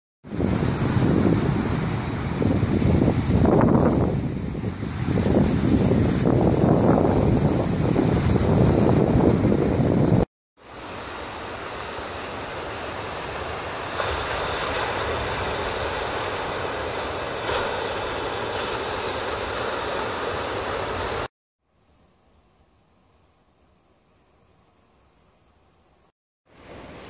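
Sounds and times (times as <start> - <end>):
wind buffeting microphone: 0.2 - 10.3
ocean surf: 0.3 - 21.3, 26.5 - 27.0
faint hiss: 21.6 - 27.0.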